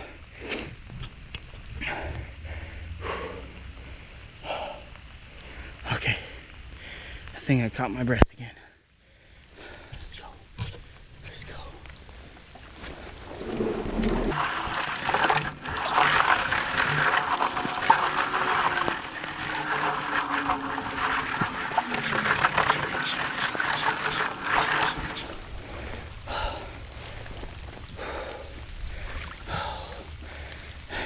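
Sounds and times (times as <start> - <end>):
pipe dragged over muddy ground: 12.6 - 25.4.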